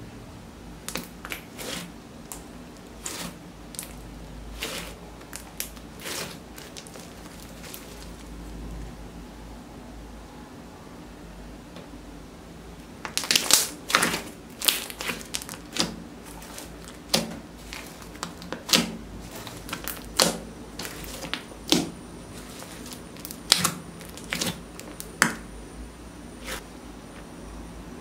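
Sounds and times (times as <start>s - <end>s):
slime squishing with sticky pops: 0.8s - 4.0s, 4.6s - 8.3s, 13.0s - 25.5s.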